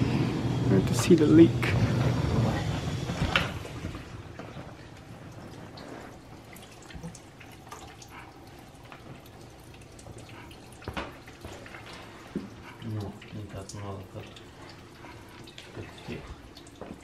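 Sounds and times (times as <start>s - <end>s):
water dripping: 3.3s - 17.0s.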